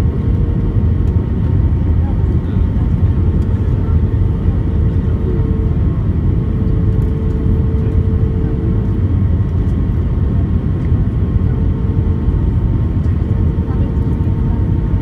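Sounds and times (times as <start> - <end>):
airplane engines and airflow rumble: 0.0 - 15.0.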